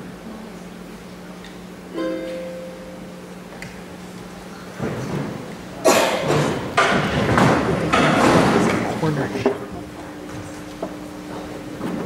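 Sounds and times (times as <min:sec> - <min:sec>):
ukulele chord ringing: 0:01.9 - 0:03.4.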